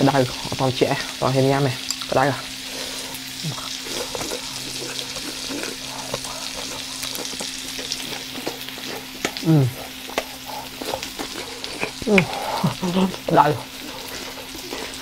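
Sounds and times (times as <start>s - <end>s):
food sizzling on grill pan: 0.0s - 15.0s
small crackles: 1.8s - 15.0s
man making vocal sound: 9.4s - 9.9s, 12.0s - 13.6s.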